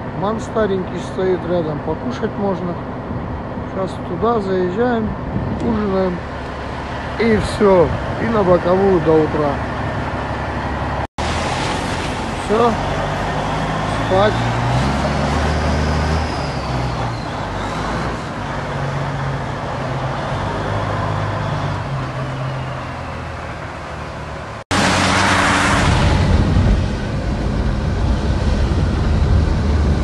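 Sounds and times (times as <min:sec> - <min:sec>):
diesel truck engine running: 0:00.0 - 0:30.0
car road and tyre-spray noise: 0:10.2 - 0:30.0.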